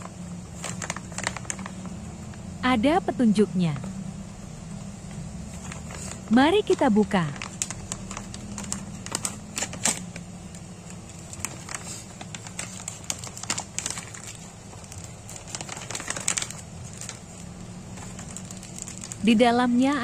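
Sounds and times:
plastic packet crinkling: 0.0 - 2.5, 5.0 - 20.0.

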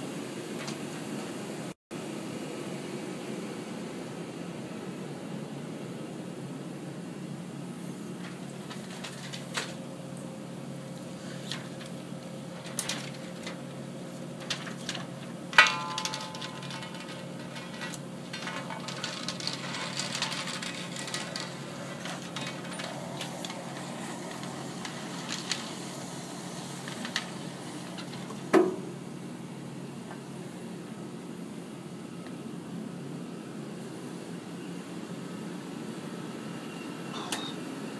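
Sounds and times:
film projector machinery hum: 0.0 - 37.9
sharp metallic knocks: 15.5 - 17.8.

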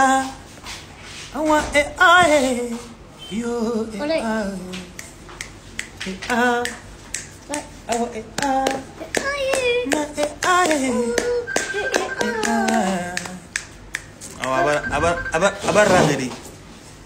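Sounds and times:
hand claps: 4.7 - 14.9
person singing gliding melody: 10.9 - 13.4.

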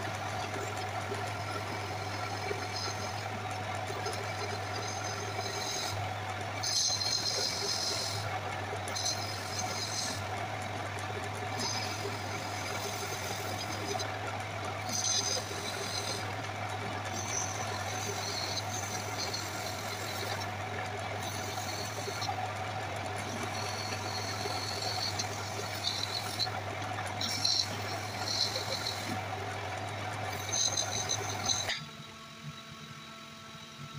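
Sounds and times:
wood lathe running: 0.0 - 32.0
high squeals of wood friction: 23.1 - 29.2, 30.3 - 31.8.

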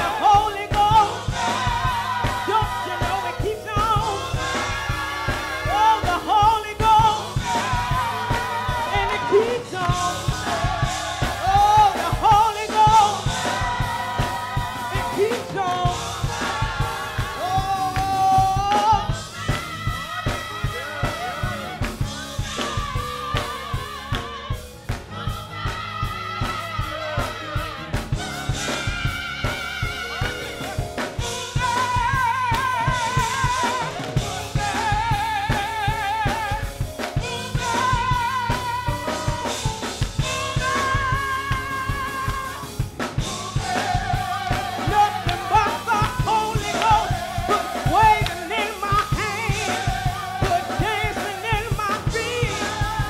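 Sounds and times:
drum kit beat: 0.0 - 53.0
gospel choir singing: 0.0 - 53.0.

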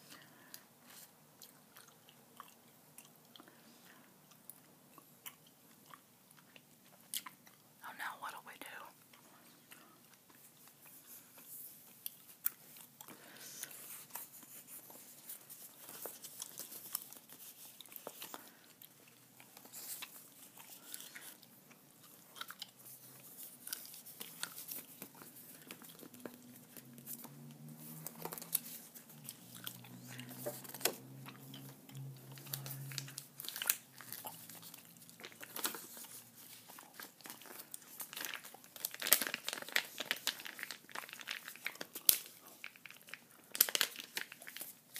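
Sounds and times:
gum chewing: 0.8 - 3.6, 4.2 - 7.8, 16.2 - 38.8.

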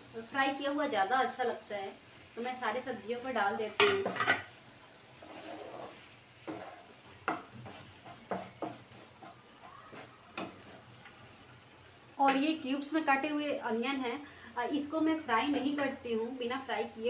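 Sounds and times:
faint sizzle: 0.0 - 17.0
spatula scraping metal pan: 5.2 - 10.9.

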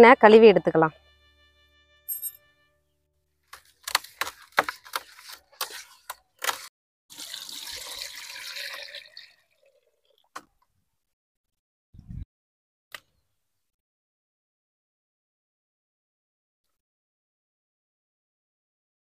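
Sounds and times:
fish being washed in water: 4.2 - 10.2.

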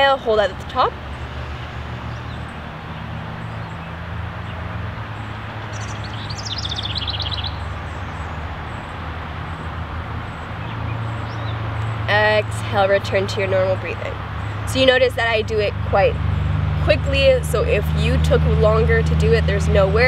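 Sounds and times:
outdoor background noise: 0.0 - 20.0
bird singing quick trill: 5.7 - 9.0.

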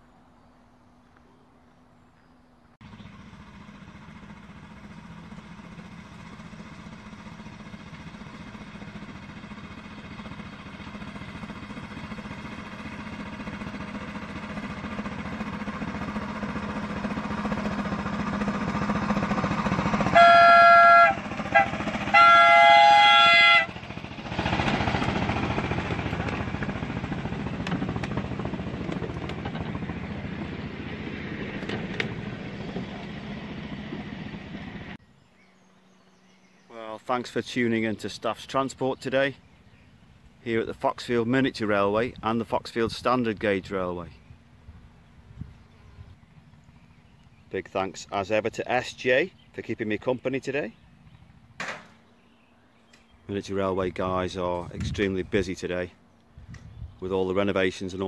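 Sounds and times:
miniature locomotive running: 16.9 - 29.6
locomotive horn toots: 19.9 - 24.1.

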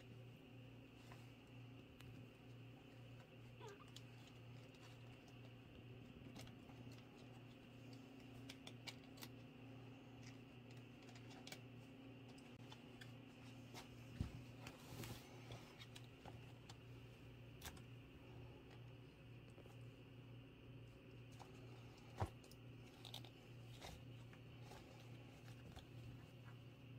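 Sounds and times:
steady low hum: 0.0 - 26.9.

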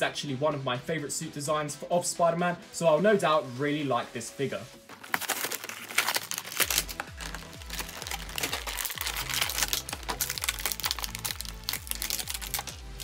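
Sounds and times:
background music with low beat: 0.0 - 13.0
plastic packaging crinkling: 4.8 - 13.0.

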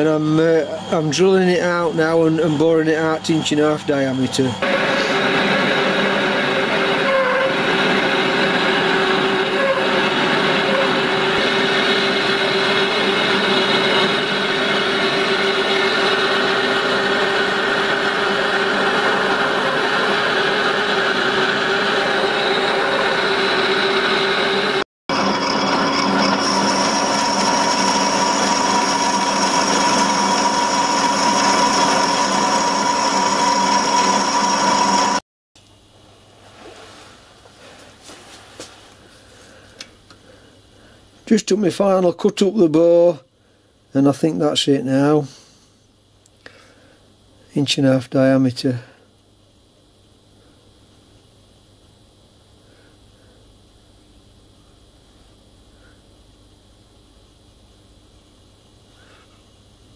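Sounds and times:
drill cutting cast iron: 0.0 - 35.2
boring bar cutting: 4.6 - 35.2
lathe running: 4.6 - 35.2.

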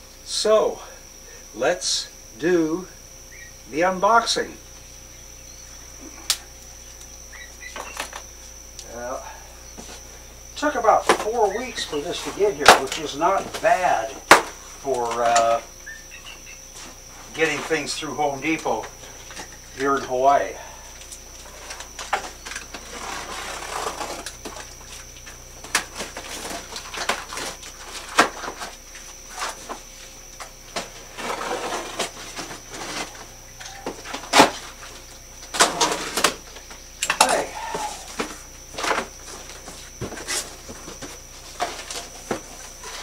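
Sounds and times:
cardboard and tape scraping: 21.4 - 25.0, 30.7 - 33.3, 35.6 - 36.4.

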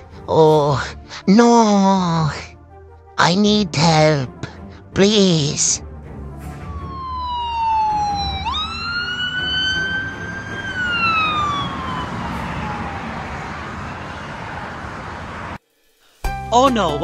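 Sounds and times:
ambulance siren wailing: 6.4 - 15.6.

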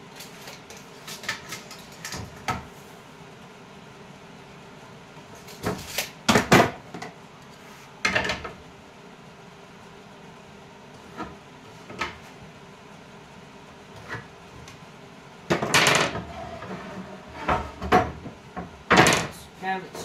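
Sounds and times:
wood scraping on wood: 16.2 - 18.0.

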